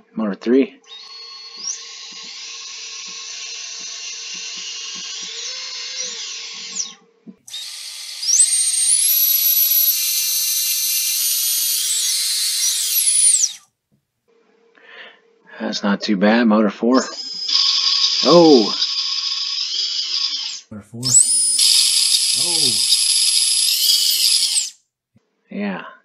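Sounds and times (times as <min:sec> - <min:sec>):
electric motor high whine: 0:00.9 - 0:13.6, 0:17.2 - 0:24.8.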